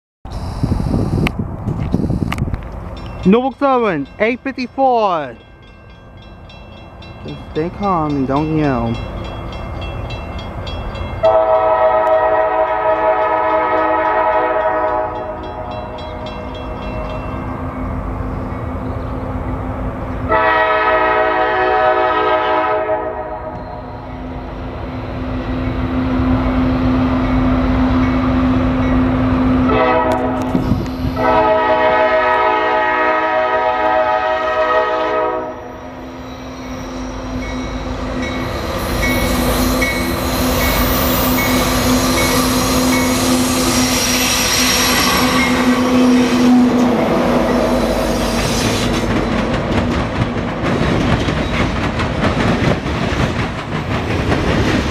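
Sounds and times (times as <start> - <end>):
locomotive air horn blasts: 0.3 - 1.3, 11.2 - 15.4, 20.3 - 23.6, 29.7 - 35.7
train approaching: 0.3 - 54.9.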